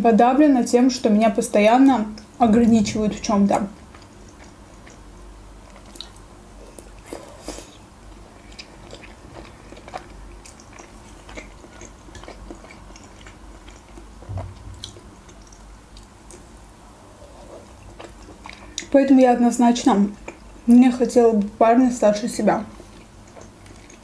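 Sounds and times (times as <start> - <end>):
wet chewing mouth smacks: 8.5 - 16.5
soft thump: 14.3 - 14.9.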